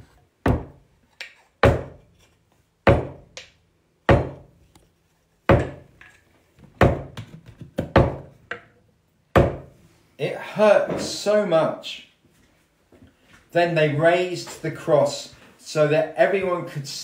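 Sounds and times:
hammer knocking nails into wood: 1.6s - 2.0s, 2.9s - 4.5s, 5.5s - 5.9s, 6.8s - 8.7s, 9.4s - 9.7s.

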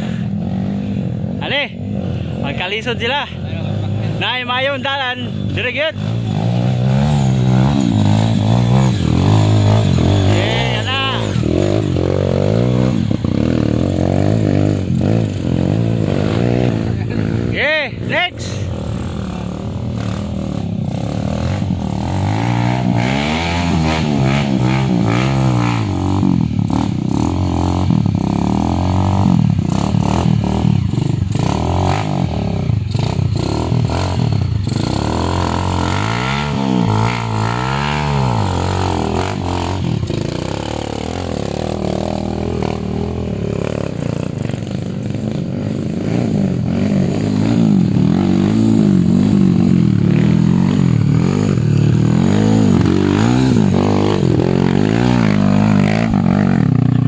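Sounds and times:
dirt bike engines revving: 0.0s - 57.0s.

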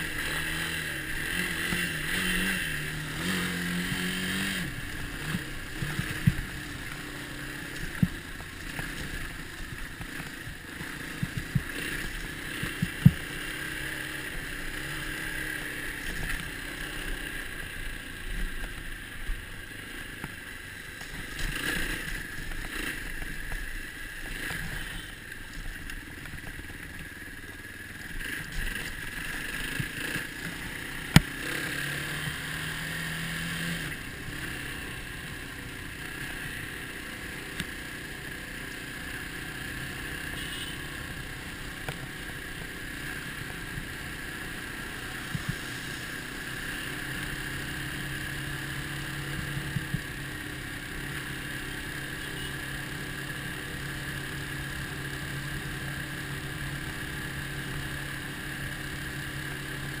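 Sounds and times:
dirt bike engine running: 0.0s - 60.0s.

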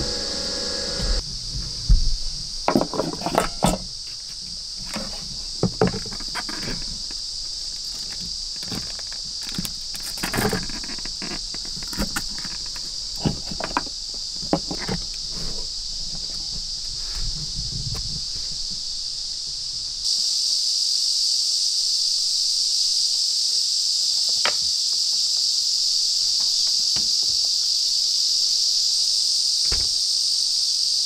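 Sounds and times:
insects chirring: 0.0s - 31.0s
clicks and knocks of handling gear: 4.8s - 15.2s.

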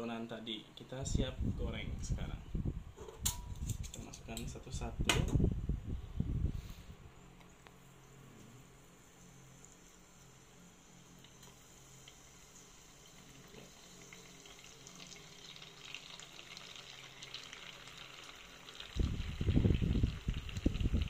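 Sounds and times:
food sizzling in oil: 8.9s - 21.0s.

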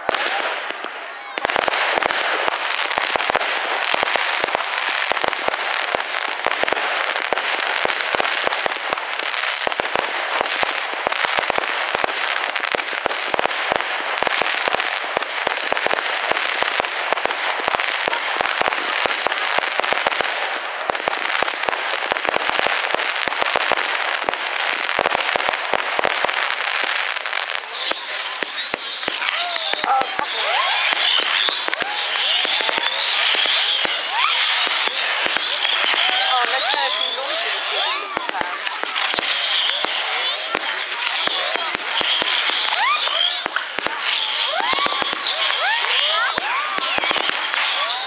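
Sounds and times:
fireworks crackling pops: 0.0s - 48.0s.

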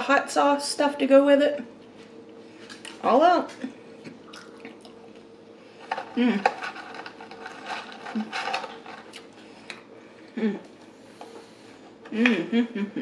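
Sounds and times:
chewing and wet mouth noises: 4.0s - 5.3s
paper carton rustling: 6.6s - 9.1s
person murmuring: 10.4s - 10.7s.

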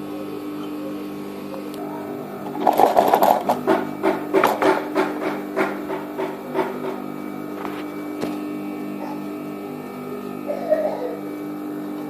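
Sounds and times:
sewing machine hum: 1.8s - 4.8s.

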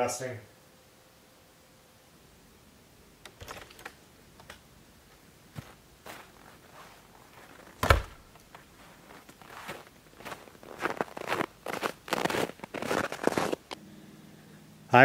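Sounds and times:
door banging shut: 7.8s - 8.3s.

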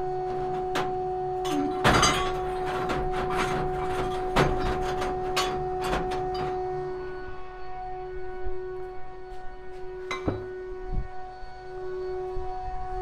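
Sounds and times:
steady hum: 0.0s - 13.0s
metal parts knocking on steel grate: 1.5s - 6.6s.

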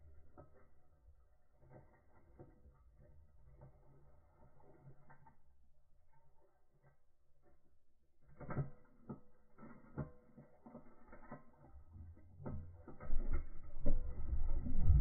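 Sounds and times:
underwater knocks and clicks: 12.4s - 15.0s.

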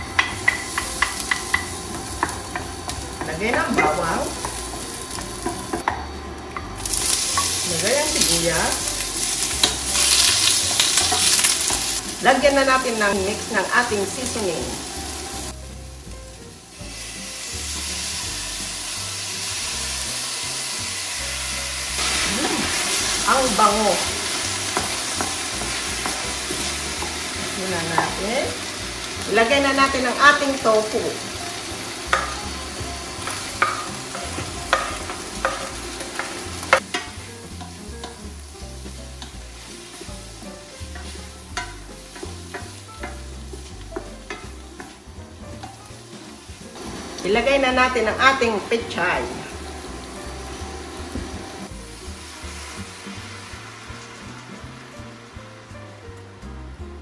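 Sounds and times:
utensil knocking against pan: 0.0s - 4.6s
background music with low notes: 0.0s - 57.0s
food sizzling in frying pan: 0.0s - 57.0s.

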